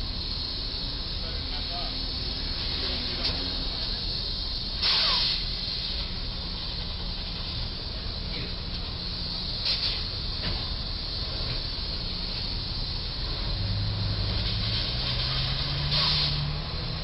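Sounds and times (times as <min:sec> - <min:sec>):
loud hiss bursts: 0:00.0 - 0:17.0
street traffic noise: 0:00.0 - 0:17.0.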